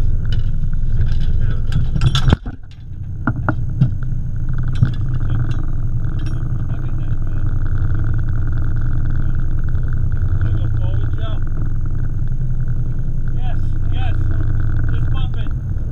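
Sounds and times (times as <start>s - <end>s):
boat engine rumbling: 0.0s - 15.9s
scattered clicks: 0.0s - 15.9s
knocks and clatter on microphone: 0.2s - 12.0s.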